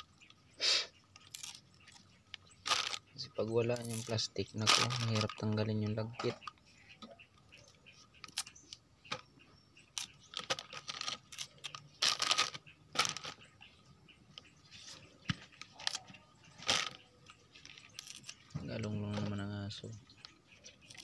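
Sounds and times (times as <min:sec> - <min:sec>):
plastic bag crinkling: 0:02.6 - 0:03.0, 0:03.8 - 0:05.5, 0:10.3 - 0:13.4, 0:16.6 - 0:17.0.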